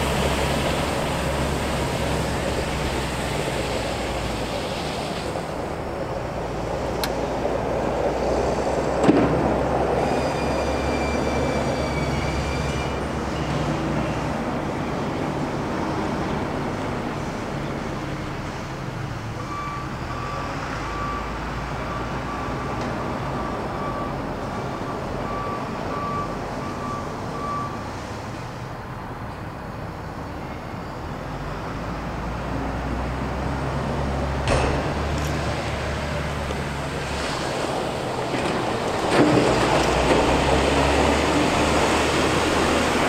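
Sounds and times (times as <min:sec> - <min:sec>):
diesel truck engine running: 0:00.0 - 0:10.9, 0:13.0 - 0:43.0.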